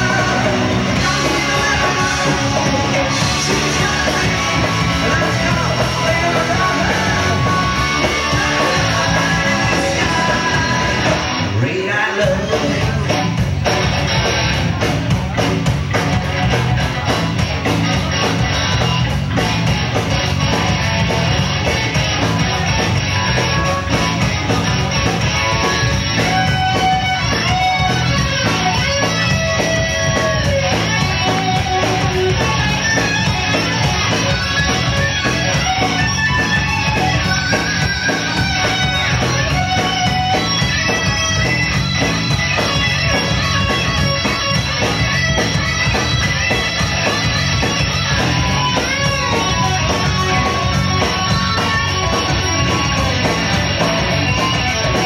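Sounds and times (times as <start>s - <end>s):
bass and drums beat: 0.0s - 55.0s
electric guitar lead bending notes: 0.0s - 55.0s
rock band playing: 0.0s - 55.0s.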